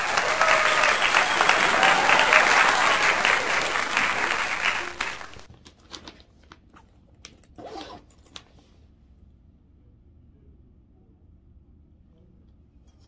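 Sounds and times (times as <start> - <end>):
applause: 0.0 - 5.5.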